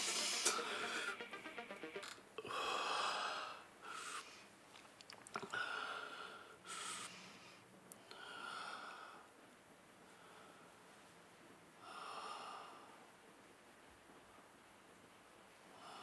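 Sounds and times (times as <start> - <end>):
man breathing heavily: 0.0 - 1.6, 2.4 - 4.6, 5.4 - 9.3.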